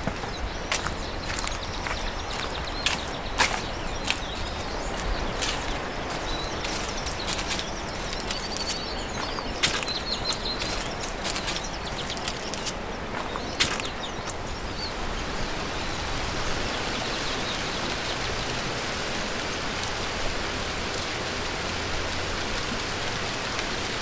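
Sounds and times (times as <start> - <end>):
footsteps on leafy dirt path: 0.0 - 14.6
high bird chirps: 0.2 - 14.4.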